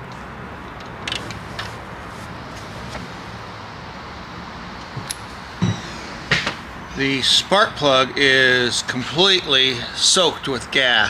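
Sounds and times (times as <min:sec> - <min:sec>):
steady background hiss: 0:00.0 - 0:11.0
heavier knocks: 0:05.0 - 0:06.6.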